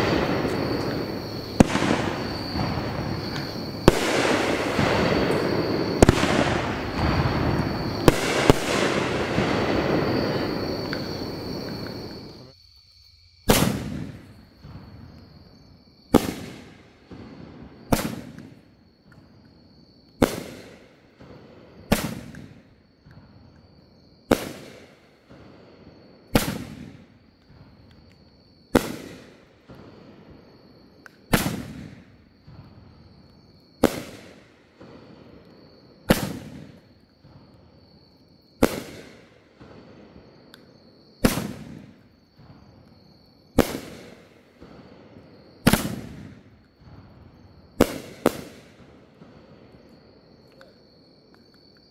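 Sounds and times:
firework shells bursting: 0.0s - 12.4s.

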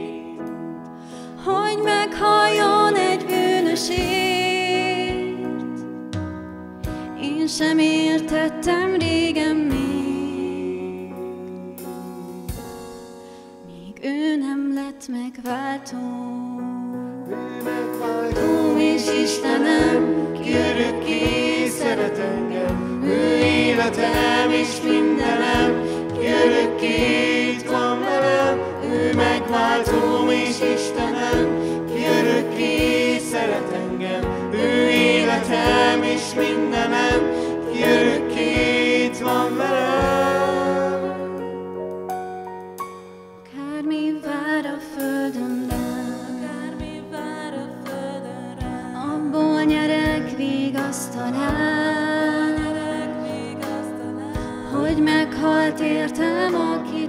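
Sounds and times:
drums: 3.2s - 7.7s, 8.7s - 10.4s, 11.8s - 13.7s, 17.4s - 41.0s, 45.0s - 55.6s
man and woman singing: 17.1s - 41.4s, 48.5s - 57.0s.

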